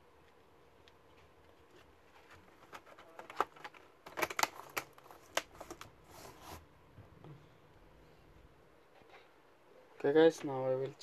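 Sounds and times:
plastic keyboard clicks and snaps: 2.7s - 5.5s.

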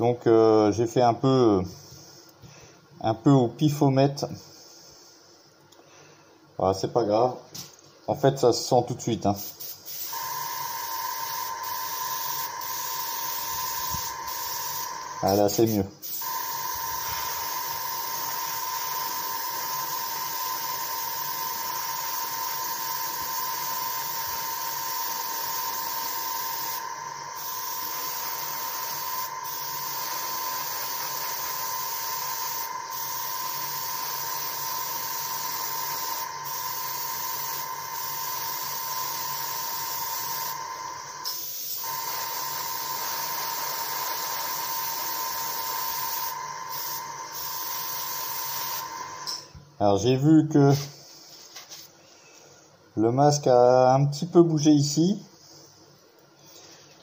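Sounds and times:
airbrush air hiss: 1.6s - 2.7s, 4.3s - 5.5s, 9.2s - 49.5s.

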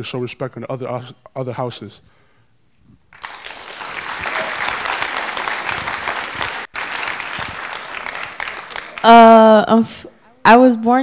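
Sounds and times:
audience applause: 3.1s - 9.4s.

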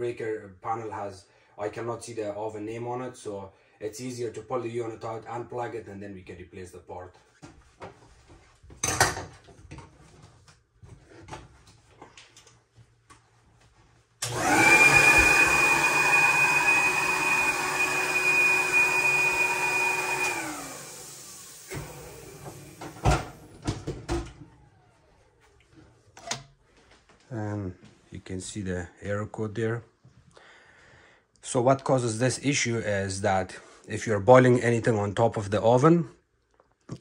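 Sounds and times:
vacuum motor whining: 14.2s - 25.4s.

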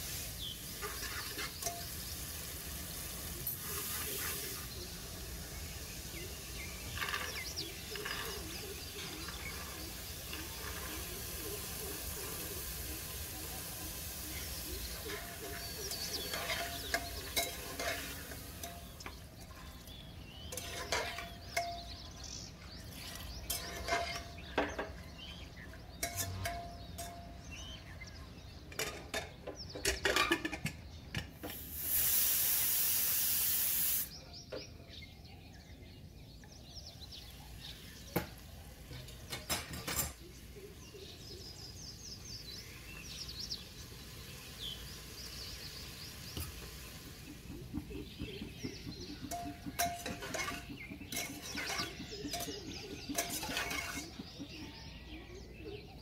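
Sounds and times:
pressure cooker steam hiss: 0.0s - 19.0s, 31.4s - 34.2s, 42.4s - 53.2s
metal spoon scraping chickpeas: 6.6s - 11.8s, 14.9s - 18.5s, 50.0s - 54.4s
spoon clinking against pot: 15.0s - 19.2s, 20.5s - 22.0s, 26.0s - 27.4s, 49.3s - 54.2s.

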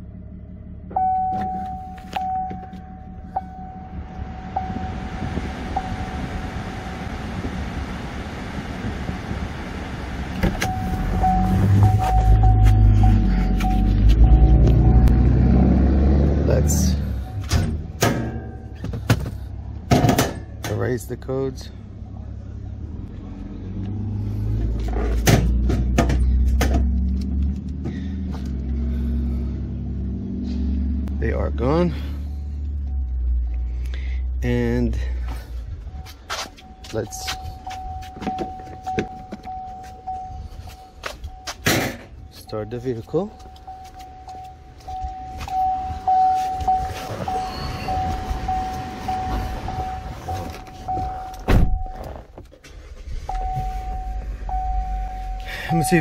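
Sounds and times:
car warning chime: 0.9s - 7.1s, 10.6s - 15.4s, 34.5s - 52.2s, 53.2s - 56.0s.

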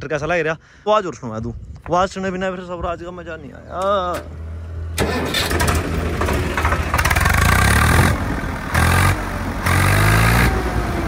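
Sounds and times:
tractor diesel engine revving: 3.2s - 11.0s.

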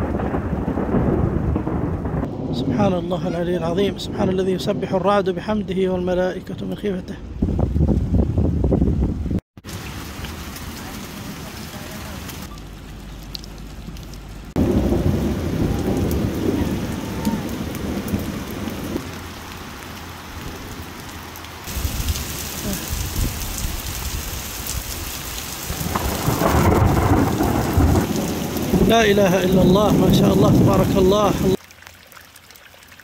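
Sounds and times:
heavy rain: 0.0s - 5.5s, 9.6s - 31.8s
low rumble of thunder: 0.0s - 6.0s, 14.5s - 19.2s, 21.7s - 31.6s.

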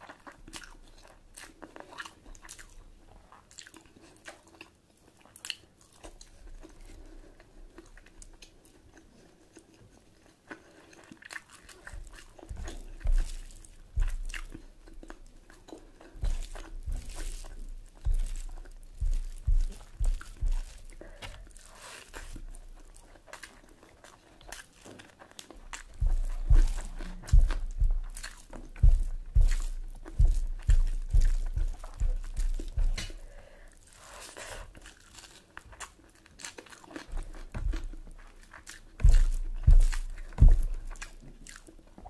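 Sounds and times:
person chewing and crunching food: 0.0s - 42.0s
dull low thumps: 12.0s - 14.6s, 16.2s - 21.6s, 25.7s - 33.3s, 37.2s - 38.1s, 39.0s - 41.0s.

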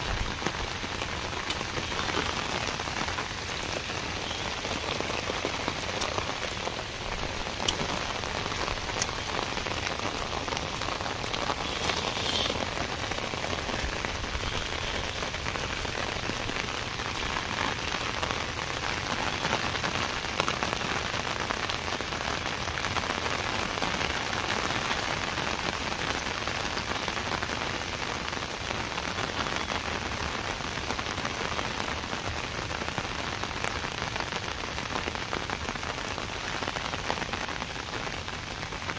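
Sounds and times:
steady rain: 0.0s - 38.9s
single raindrop ticks: 7.5s - 9.4s.

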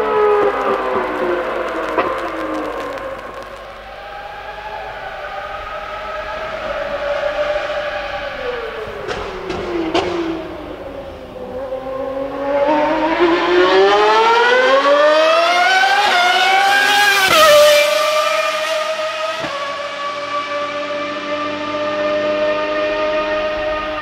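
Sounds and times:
racing car engine at high revs: 0.0s - 24.0s
sharp engine cracks: 0.3s - 3.9s.

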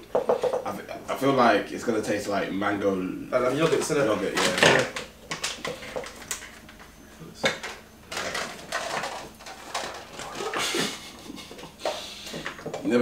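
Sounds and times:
plastic clicks and rustles: 3.6s - 10.6s.

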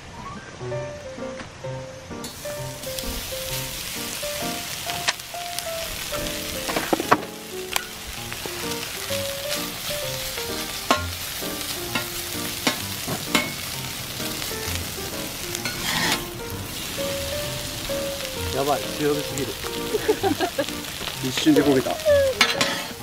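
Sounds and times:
meat sizzling on griddle: 2.2s - 23.0s
metal spatulas scraping plate: 15.6s - 16.3s, 22.4s - 23.0s.

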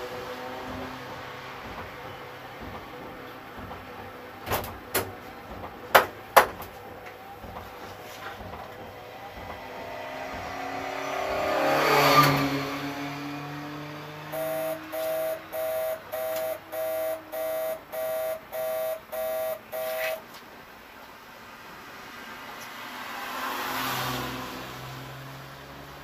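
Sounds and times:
race car engine passing by: 7.4s - 19.9s, 22.0s - 26.0s
electronic warning beep: 14.3s - 20.2s.

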